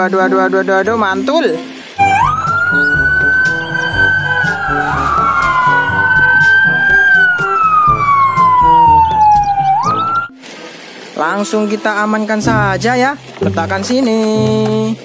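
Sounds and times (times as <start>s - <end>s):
police siren wailing: 2.0s - 10.4s.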